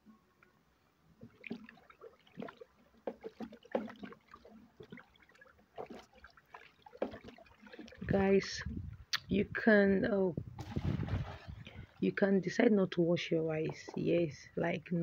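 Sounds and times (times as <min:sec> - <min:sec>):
stick stirring rice in water: 0:01.2 - 0:08.0.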